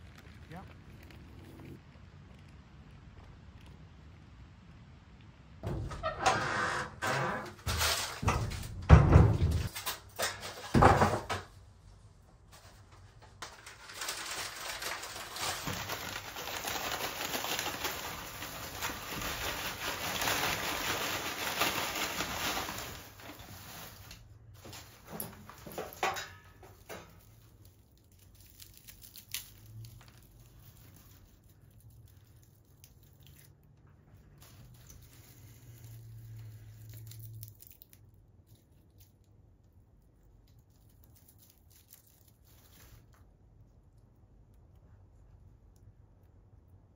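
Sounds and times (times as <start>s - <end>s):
paper bag crinkling: 0.0s - 1.8s, 12.6s - 37.9s
dry cones crackling in plastic tray: 0.0s - 3.8s, 12.6s - 43.3s.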